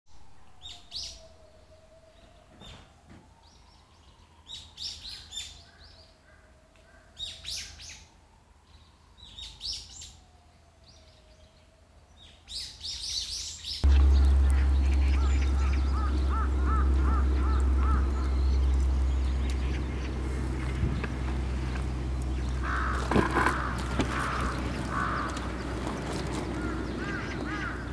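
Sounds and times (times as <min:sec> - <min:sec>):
small birds chirping: 0:12.2 - 0:27.9
faint rising and falling tone: 0:13.8 - 0:22.7
loud low rumble: 0:13.8 - 0:27.9.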